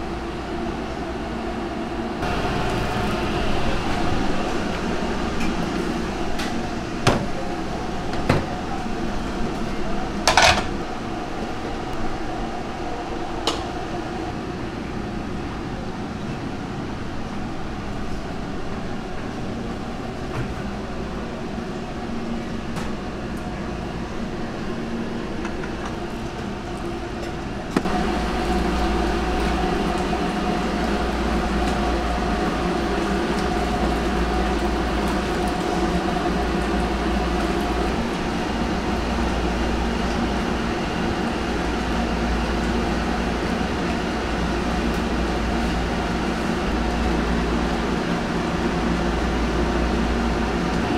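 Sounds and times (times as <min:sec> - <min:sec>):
kitchen machine hum: 0:00.0 - 0:50.9.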